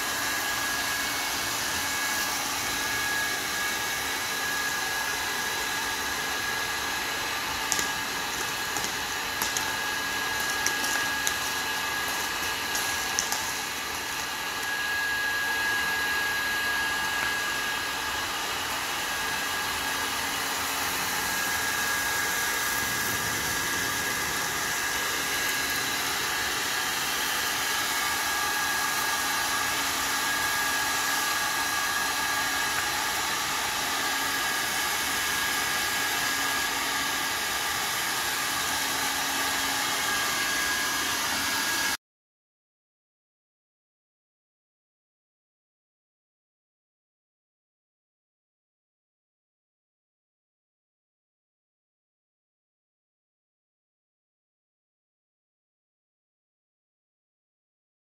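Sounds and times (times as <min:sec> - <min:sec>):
industrial vacuum running: 0:00.0 - 0:42.0
vacuum nozzle swept over concrete: 0:00.1 - 0:37.3.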